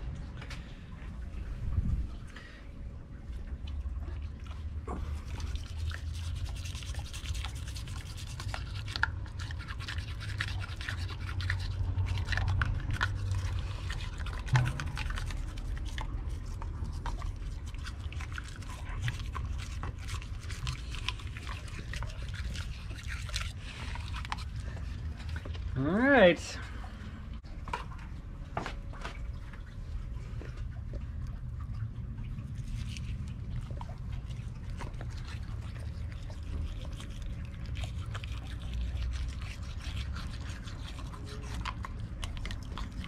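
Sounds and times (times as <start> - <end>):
dog chewing wet clicks: 3.2 - 25.8, 27.3 - 43.0
toothbrush scrubbing teeth: 5.0 - 25.8, 32.4 - 43.0.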